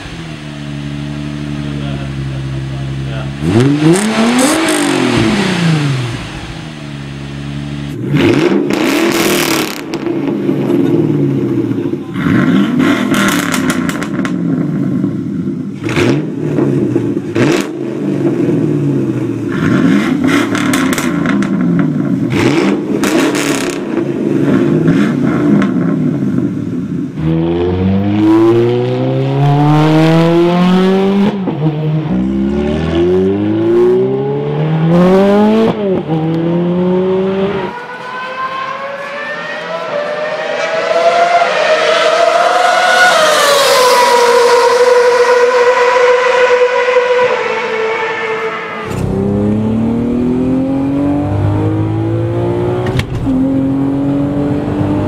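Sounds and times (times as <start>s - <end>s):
car engines revving: 0.0s - 55.0s
racing car engine whine: 0.0s - 55.0s
engine revving in rising sweeps: 3.1s - 10.1s, 27.2s - 55.0s
exhaust cracks: 19.8s - 24.0s, 48.8s - 50.3s.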